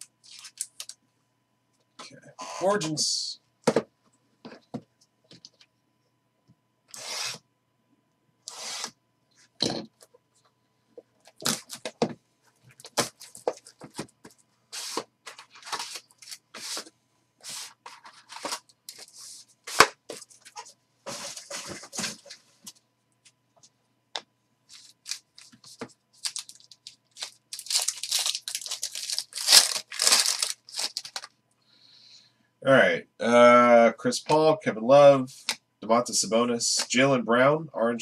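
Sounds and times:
trading cards rustling: 12.7s - 22.4s, 24.7s - 31.3s.

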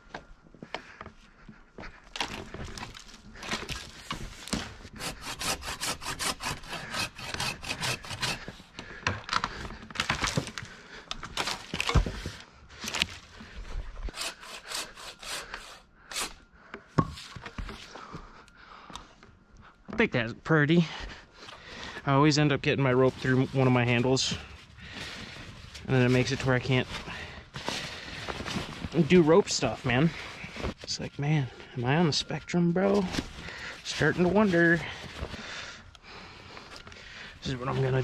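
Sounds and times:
pole saw cutting branch: 4.5s - 8.7s, 14.1s - 16.4s.

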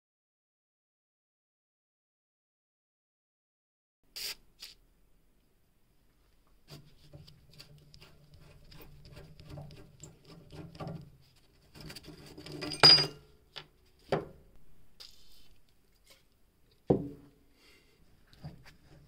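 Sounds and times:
sharp metal clink: 12.7s - 13.2s.

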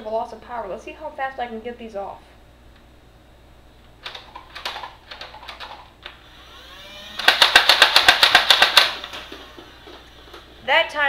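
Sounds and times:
toy blaster firing darts rapidly: 4.1s - 10.4s
flywheel motors whining: 6.0s - 10.9s
toy blaster handling clicks: 7.2s - 9.6s.

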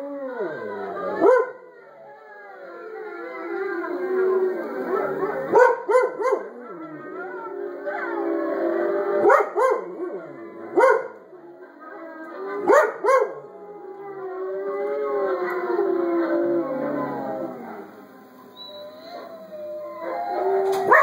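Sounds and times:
wolf pack howling: 0.0s - 21.0s
dog barking and yipping: 5.5s - 6.4s, 10.8s - 11.1s.

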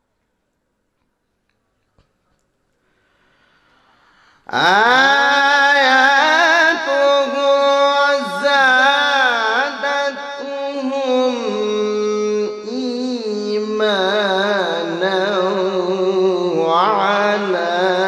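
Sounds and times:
man reciting melodically: 4.4s - 18.0s.

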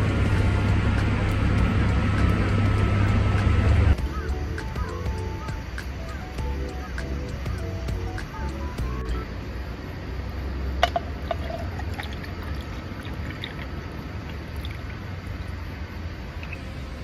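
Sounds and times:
glass clinking: 10.8s - 13.7s
ice clinking: 10.8s - 15.0s
liquid pouring: 10.8s - 15.6s.

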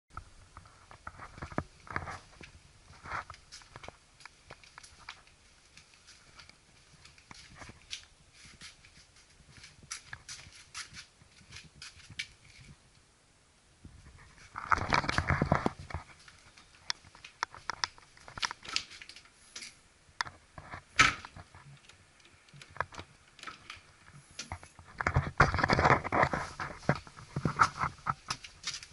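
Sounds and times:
rustling: 0.2s - 12.8s, 13.9s - 28.9s
small clicks and knocks: 14.6s - 28.9s.

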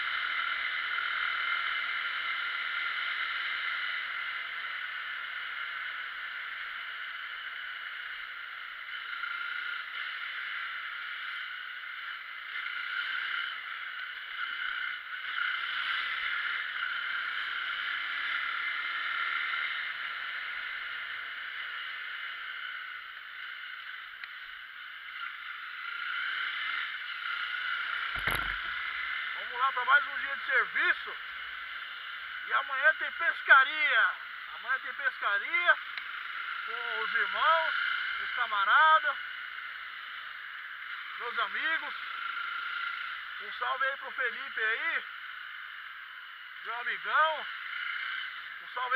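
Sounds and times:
faint motorcycle engine: 0.0s - 48.9s
wind and road noise: 22.6s - 32.5s.

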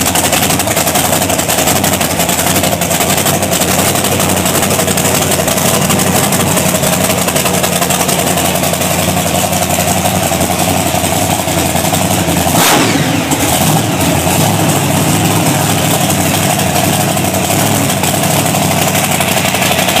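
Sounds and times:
engine idling and revving: 0.0s - 20.0s.

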